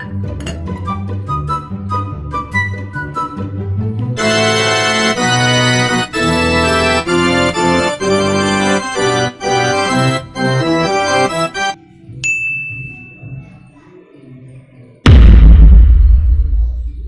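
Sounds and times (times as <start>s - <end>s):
organ-like keyboard chords: 4.2s - 11.8s.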